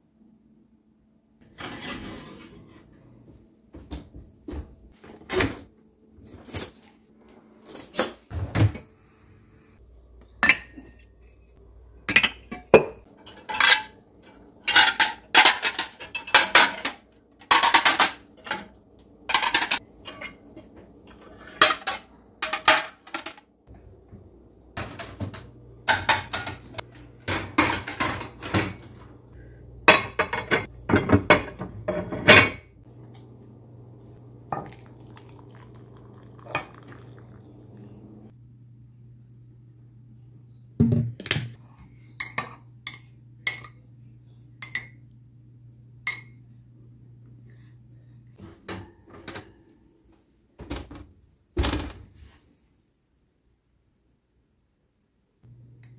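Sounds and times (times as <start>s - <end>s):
ceramic plates clinking: 10.4s - 11.1s.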